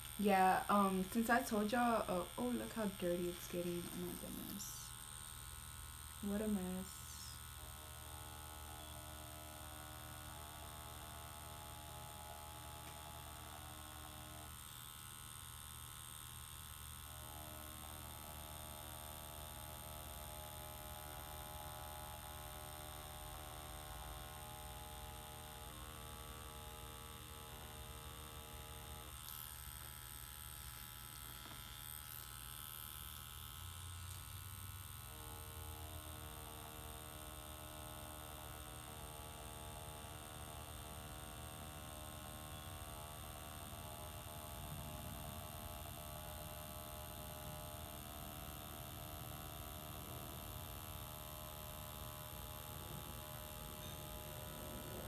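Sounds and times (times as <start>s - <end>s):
tattoo machine humming: 0.0s - 55.0s.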